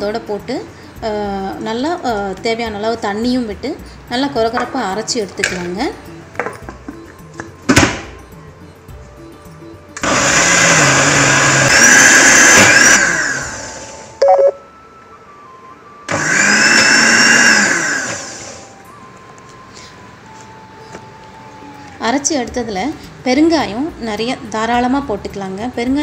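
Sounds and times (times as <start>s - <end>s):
blender grinding: 10.0s - 14.2s, 16.1s - 18.7s.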